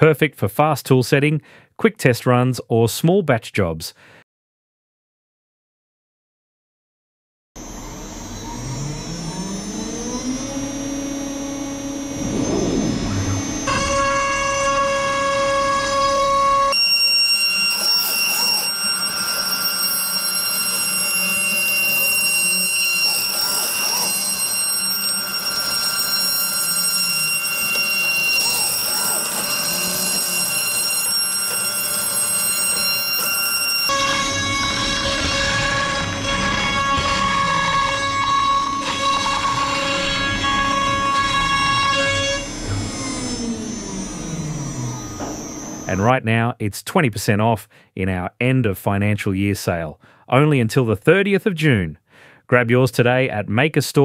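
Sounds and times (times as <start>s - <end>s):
router spindle whine: 7.6s - 46.0s
stepper motors humming: 7.6s - 46.0s
rough rush of noise: 12.1s - 13.7s.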